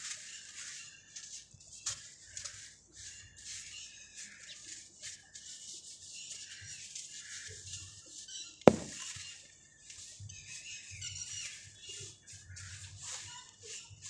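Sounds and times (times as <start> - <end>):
grit pattering onto sandy floor: 0.0 - 10.7, 11.5 - 14.0
sharp knock: 8.7 - 9.0.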